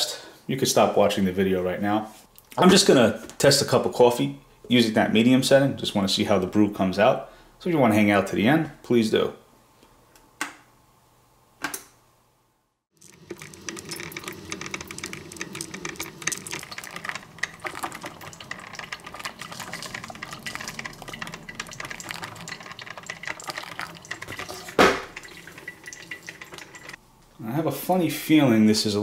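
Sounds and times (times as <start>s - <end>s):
coffee maker brewing: 12.9s - 27.0s.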